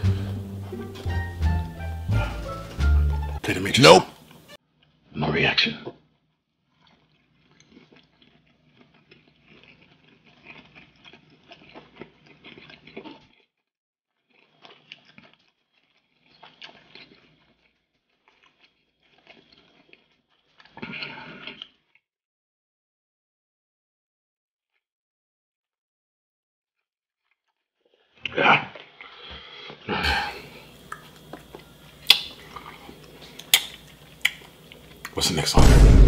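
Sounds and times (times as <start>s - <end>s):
close chewing with wet smacks: 6.7s - 13.5s, 14.2s - 22.0s, 30.4s - 35.2s.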